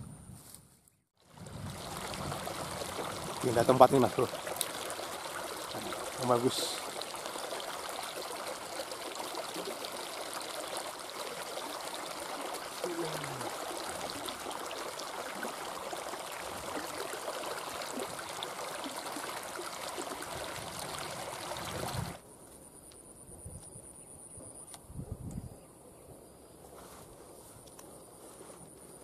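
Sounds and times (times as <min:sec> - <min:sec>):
water rushing and splashing: 0:01.2 - 0:22.2.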